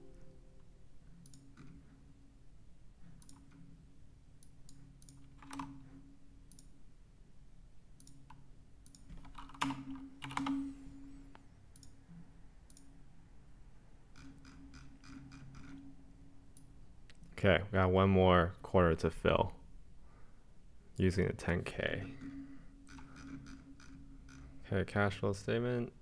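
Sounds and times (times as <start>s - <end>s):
faint steady hum: 0.0s - 26.0s
mouse and keyboard clicks: 3.1s - 3.7s.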